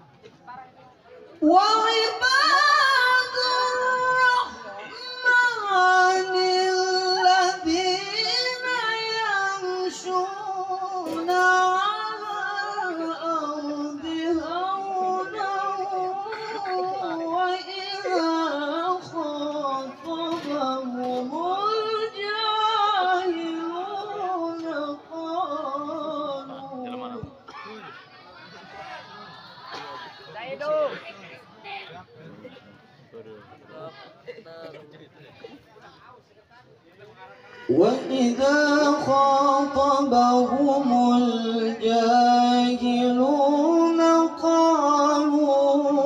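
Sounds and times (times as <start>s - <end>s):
man chanting through loudspeaker: 37.6s - 46.0s.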